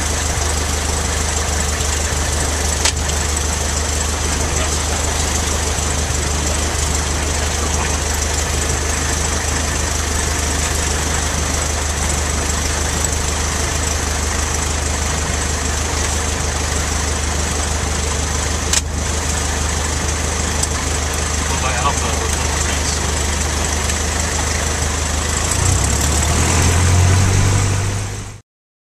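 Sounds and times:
small plane engine running: 0.0s - 28.4s.

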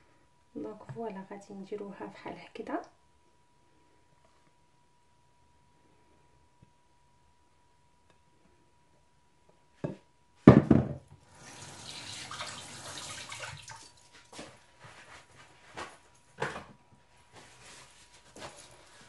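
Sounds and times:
water running from a tap: 11.2s - 14.2s.

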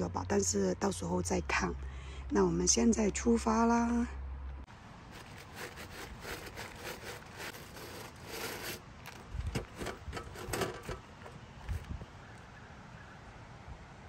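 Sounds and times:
boots scraping on bristle brushes: 5.1s - 11.9s.

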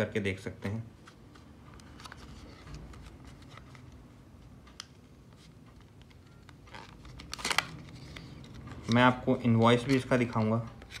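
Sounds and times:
plastic crackling: 5.7s - 9.2s
plastic packaging being pried open: 6.7s - 8.0s.

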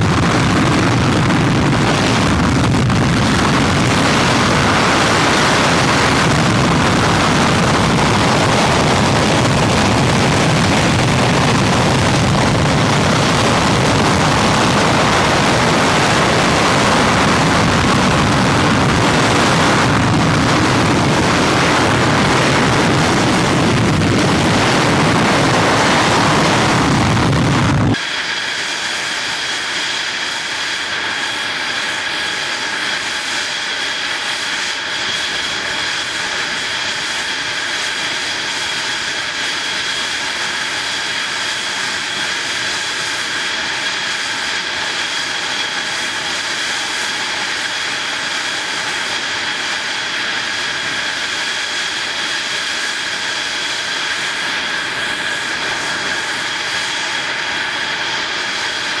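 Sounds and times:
jet engine rushing with high whine: 0.0s - 59.0s.

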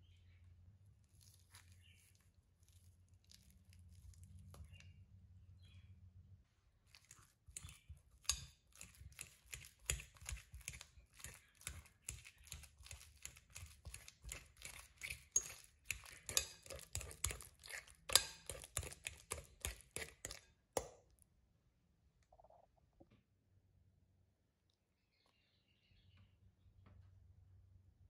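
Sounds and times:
fork mashing bananas: 6.8s - 21.1s
fork clinking on glass bowl: 7.6s - 13.0s, 13.6s - 20.4s.

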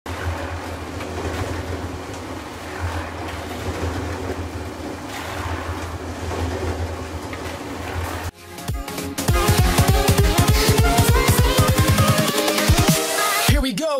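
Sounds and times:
concrete mixer churning: 0.0s - 8.4s.

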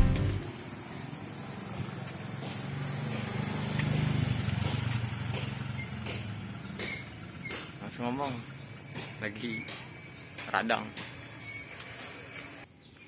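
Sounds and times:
motorcycle engine running: 0.0s - 10.4s.

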